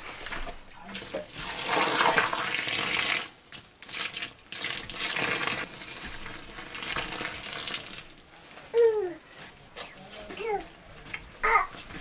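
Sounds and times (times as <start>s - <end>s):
water pouring and splashing: 0.0s - 8.3s.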